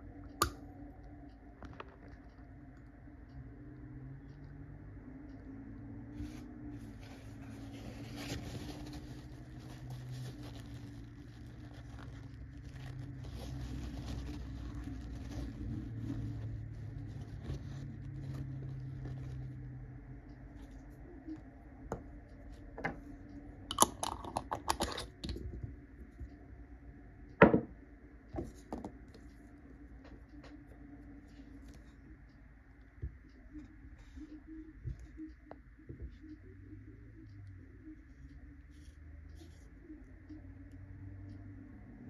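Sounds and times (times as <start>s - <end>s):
tissue rubbing on pen: 6.2s - 19.4s.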